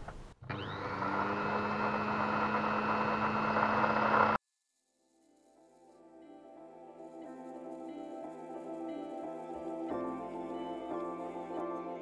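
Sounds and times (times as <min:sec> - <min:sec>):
lathe motor whine: 0:00.4 - 0:04.4
soft music: 0:04.8 - 0:12.0.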